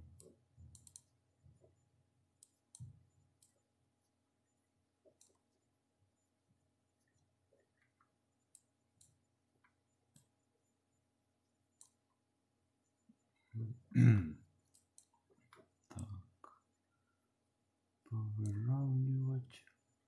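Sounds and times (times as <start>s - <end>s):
computer mouse clicks: 0.2s - 1.8s, 2.4s - 3.7s, 5.0s - 5.7s, 7.0s - 10.5s, 11.7s - 12.2s, 14.6s - 16.1s.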